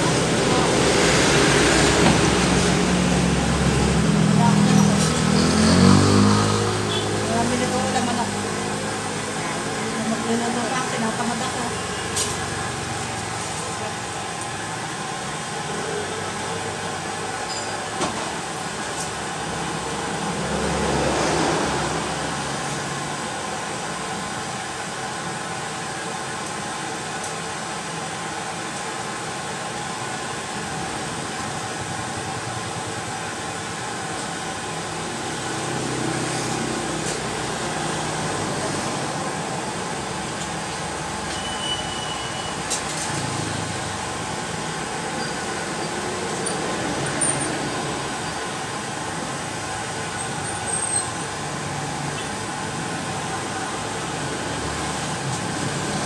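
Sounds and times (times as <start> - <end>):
vehicles passing: 0.0 - 26.1, 29.4 - 41.4, 42.6 - 56.0
steady traffic rumble: 0.0 - 56.0.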